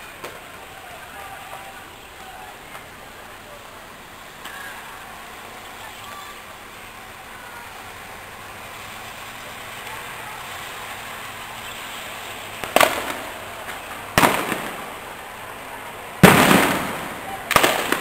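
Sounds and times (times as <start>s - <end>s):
steady background hiss: 0.0s - 18.0s
loud sharp bangs: 12.6s - 15.1s, 16.2s - 18.0s.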